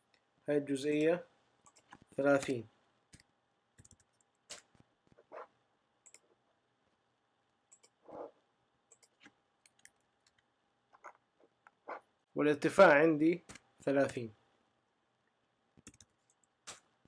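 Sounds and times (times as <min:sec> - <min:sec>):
computer mouse clicks: 0:01.6 - 0:02.1, 0:03.1 - 0:05.2, 0:06.0 - 0:06.3, 0:07.7 - 0:08.0, 0:08.9 - 0:11.2, 0:15.8 - 0:16.9.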